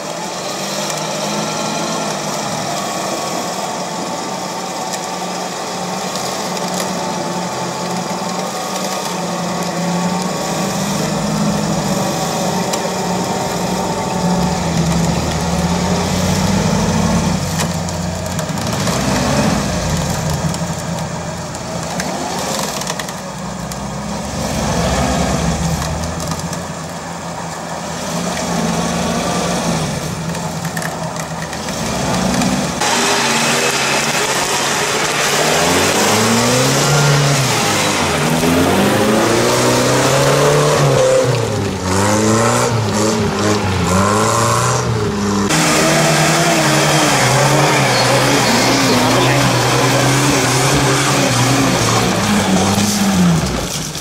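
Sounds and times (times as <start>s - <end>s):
engine revving in mud: 0.0s - 54.0s
wheels spinning in mud: 0.0s - 54.0s
steady engine note: 32.6s - 53.8s.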